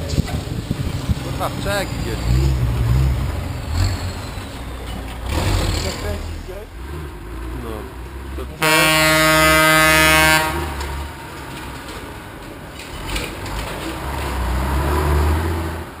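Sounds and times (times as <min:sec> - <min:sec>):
truck engine rumble: 0:00.0 - 0:16.0
loud horn blast: 0:08.6 - 0:11.0.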